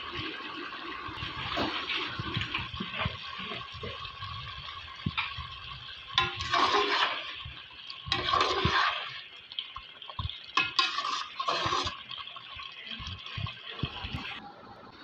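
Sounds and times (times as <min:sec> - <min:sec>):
spoon stirring thick curry: 0:02.5 - 0:14.4.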